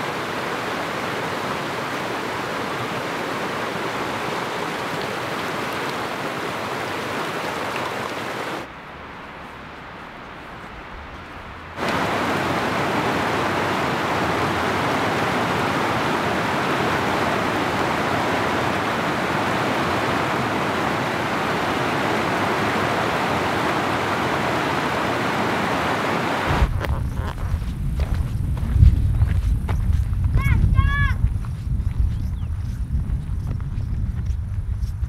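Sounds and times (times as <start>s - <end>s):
stream rushing over rocks: 0.0s - 27.2s
faint steady hiss: 0.0s - 28.2s.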